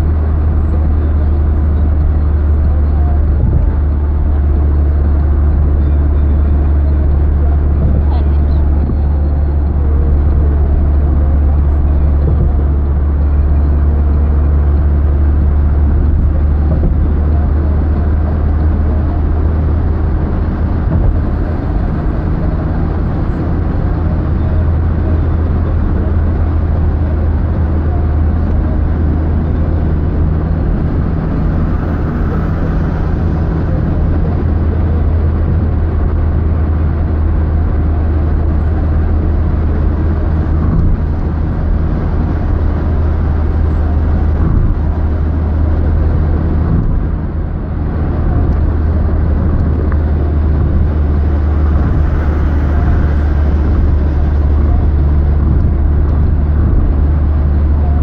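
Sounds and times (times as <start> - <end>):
car cabin engine drone: 0.0 - 58.0.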